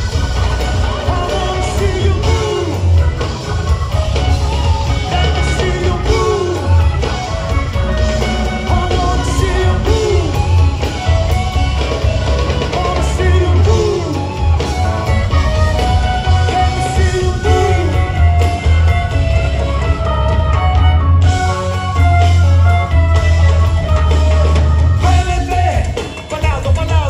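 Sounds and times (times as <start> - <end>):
rock band playing: 0.0 - 27.0
person singing: 0.9 - 3.0, 5.0 - 7.0, 8.4 - 10.8, 12.6 - 14.5, 16.4 - 18.4.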